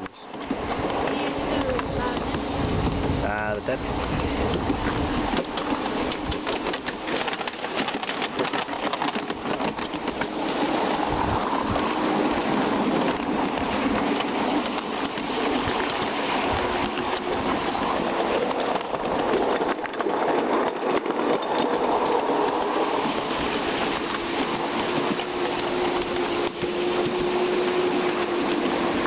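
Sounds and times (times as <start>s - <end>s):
miniature train wheels rumbling: 0.0s - 29.0s
wheels clicking and clattering on track: 0.0s - 29.0s.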